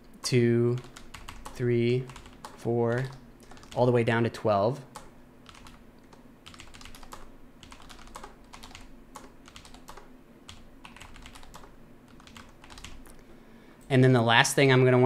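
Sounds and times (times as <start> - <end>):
computer keyboard typing: 0.7 - 4.0, 4.9 - 13.1.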